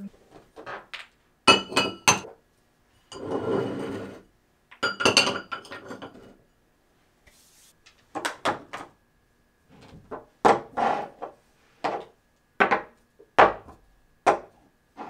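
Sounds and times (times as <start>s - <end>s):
glass bottles clinking: 1.5s - 2.3s, 4.8s - 6.2s
scraping rub on countertop: 3.2s - 4.3s.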